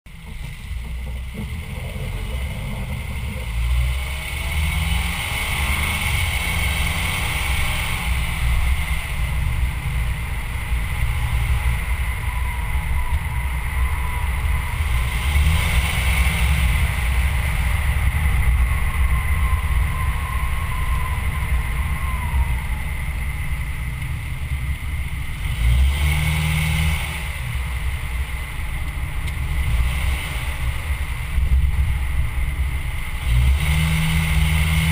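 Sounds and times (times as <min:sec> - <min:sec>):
tyre and road noise: 0:00.1 - 0:34.9
wind buffeting microphone: 0:07.7 - 0:25.5.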